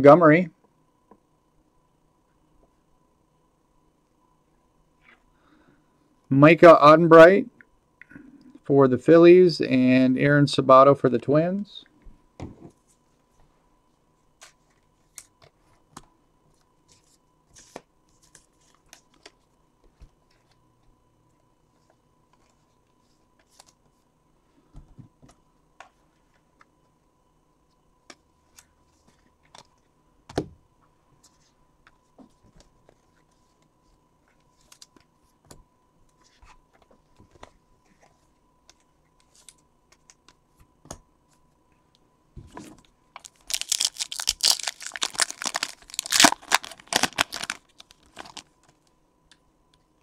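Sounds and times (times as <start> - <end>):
foil pack tearing and crinkling: 43.2 - 48.5.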